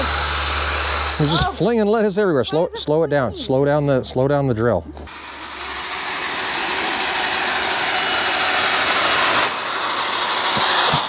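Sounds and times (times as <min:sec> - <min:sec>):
cordless drill whirring: 0:00.0 - 0:01.7, 0:05.0 - 0:11.0.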